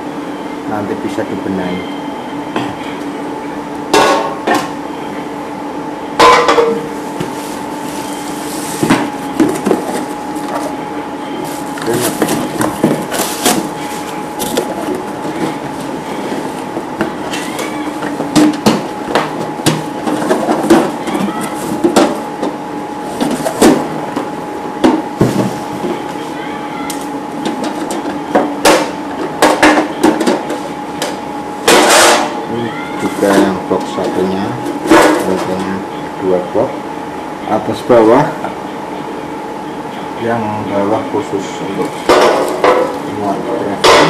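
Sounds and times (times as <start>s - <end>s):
steady background hum: 0.0s - 44.0s.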